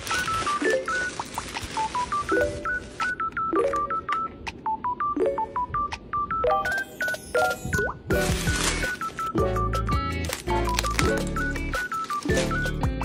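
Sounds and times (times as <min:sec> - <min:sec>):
plastic bag and fabric rustling: 0:00.0 - 0:03.2, 0:08.1 - 0:09.4, 0:10.2 - 0:12.8
high electronic beeping melody: 0:00.0 - 0:10.2.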